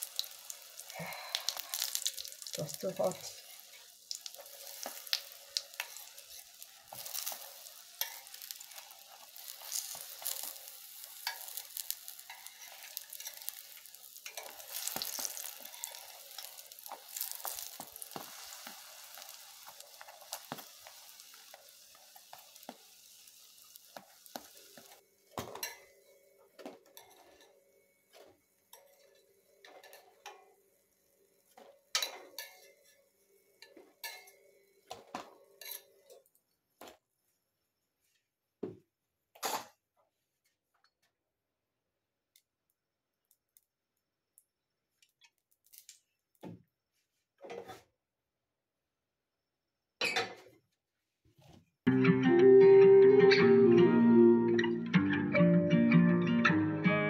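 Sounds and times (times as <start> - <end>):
batter sizzling in oil: 0.0 - 36.0.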